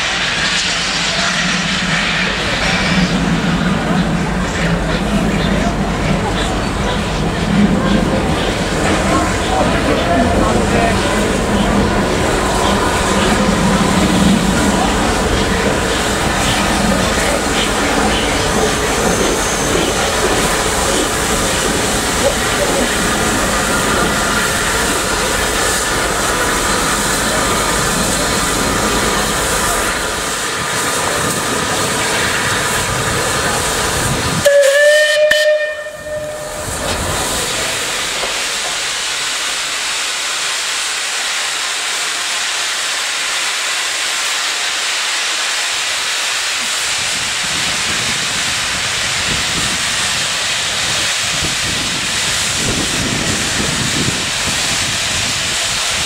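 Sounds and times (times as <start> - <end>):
steam hissing from locomotive: 0.0 - 56.0
steam locomotive whistle: 34.4 - 36.9.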